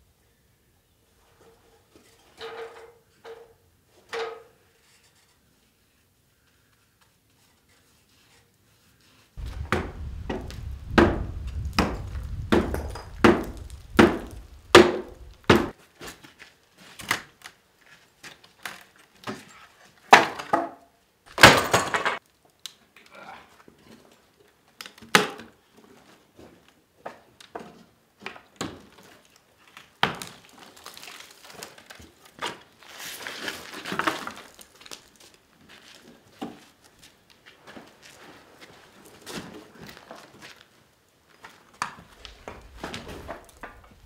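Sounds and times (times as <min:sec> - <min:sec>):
heavy knocks on wood: 0:09.4 - 0:15.7
low rumble: 0:09.4 - 0:15.7.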